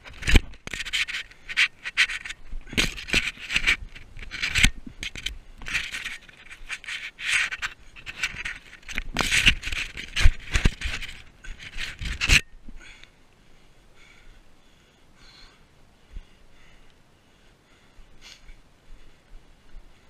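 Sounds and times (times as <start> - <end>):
rope net scraping over camera: 0.2 - 12.5.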